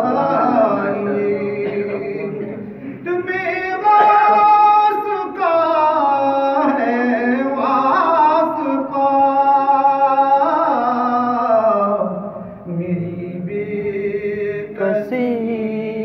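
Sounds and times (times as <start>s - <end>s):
man singing solo: 3.0s - 11.4s.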